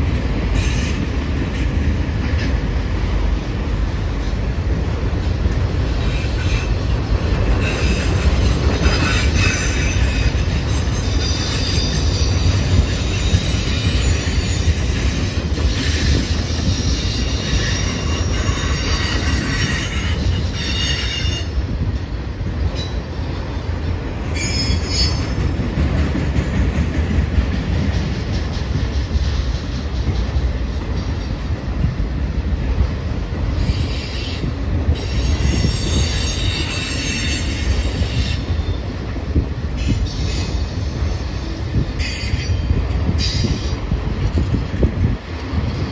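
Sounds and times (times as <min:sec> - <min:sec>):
train wheels rumbling on rail: 0:00.0 - 0:45.9
high-pitched wheel squeal: 0:07.6 - 0:21.6, 0:24.3 - 0:25.4.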